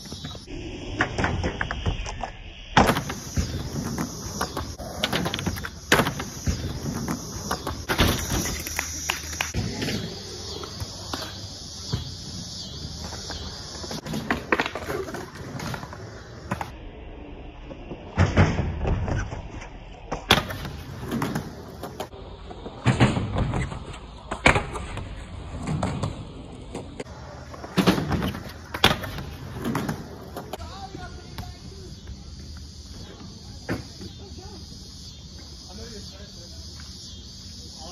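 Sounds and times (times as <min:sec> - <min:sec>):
skateboards rolling on concrete: 0:00.0 - 0:37.9
skateboard clacks and thuds: 0:13.0 - 0:16.7, 0:20.2 - 0:30.6.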